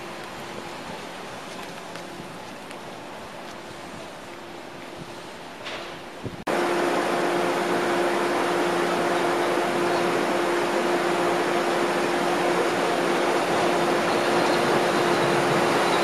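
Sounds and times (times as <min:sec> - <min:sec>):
trolley car equipment humming: 0:00.0 - 0:16.0
constant tone: 0:06.5 - 0:16.0.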